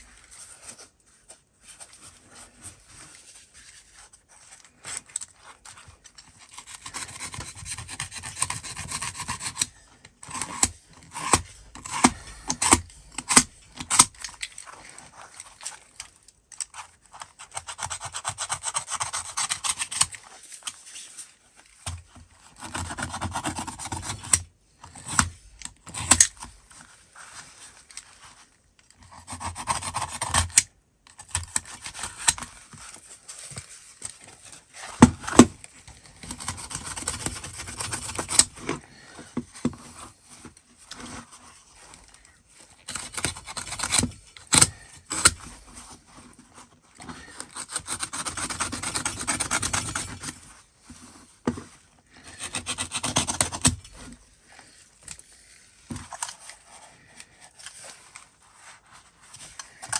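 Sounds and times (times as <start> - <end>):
knife blade scraping fabric: 6.4 - 15.4, 42.7 - 50.4, 52.1 - 55.2.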